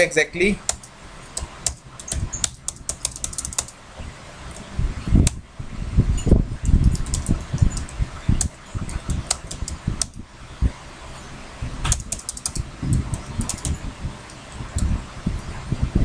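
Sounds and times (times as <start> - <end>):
keyboard typing clicks: 0.7 - 3.8, 6.6 - 10.2, 11.8 - 14.9.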